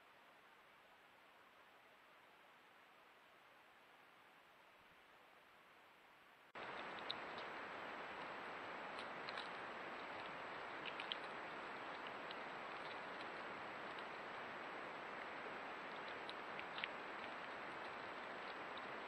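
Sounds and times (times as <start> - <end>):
microphone hiss: 0.0 - 19.0
faint ticks and rustles: 6.5 - 19.0.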